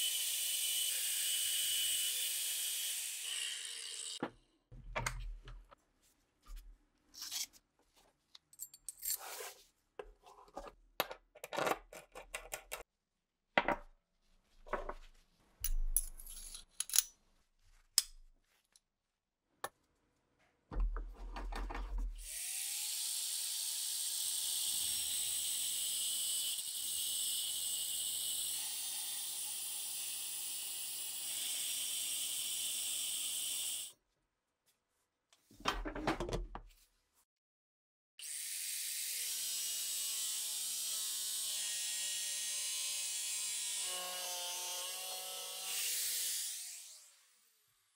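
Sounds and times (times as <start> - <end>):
power grinder grinding steel: 0.0 - 4.2, 39.2 - 47.6
metal parts clinking: 15.6 - 17.1.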